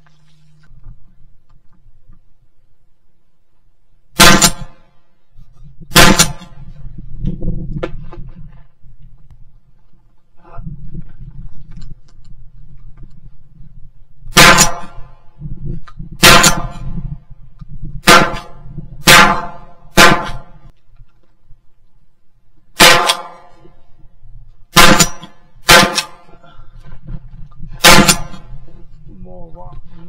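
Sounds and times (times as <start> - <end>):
shotgun shots: 4.2 - 4.9, 5.9 - 6.6, 14.3 - 15.2, 16.2 - 16.9, 18.0 - 20.6, 22.8 - 23.6, 24.7 - 26.3, 27.8 - 28.6.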